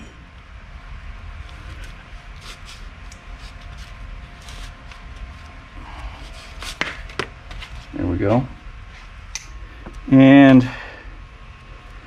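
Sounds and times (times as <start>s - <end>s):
low steady hum: 0.0s - 12.0s
knife scraping rubber hose: 1.5s - 5.2s.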